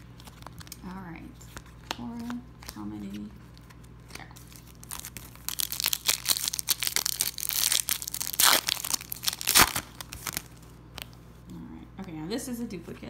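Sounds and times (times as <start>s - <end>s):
wrapper tearing and crinkling: 3.6s - 11.1s.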